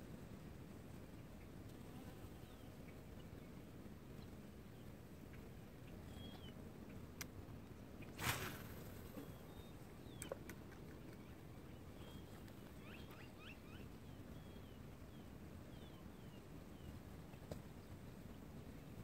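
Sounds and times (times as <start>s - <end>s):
small birds chirping: 1.0s - 19.0s
fishing rod whoosh: 8.2s - 9.2s.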